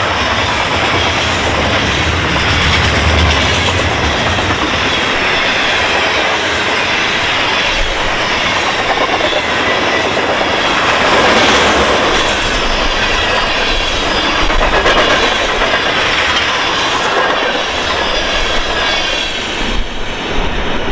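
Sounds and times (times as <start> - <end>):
train wheels running on rails: 0.0 - 20.9.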